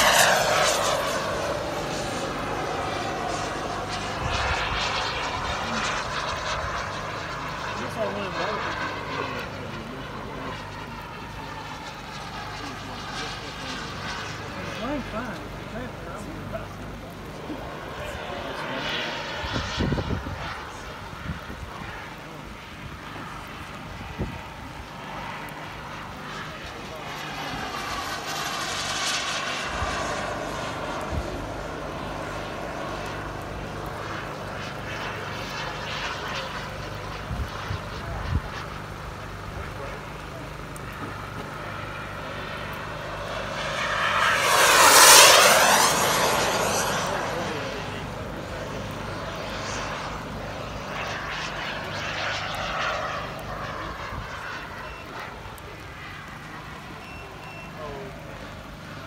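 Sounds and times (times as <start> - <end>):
model jet engine whine: 0.0 - 59.0
rain: 14.1 - 18.6, 28.9 - 37.2.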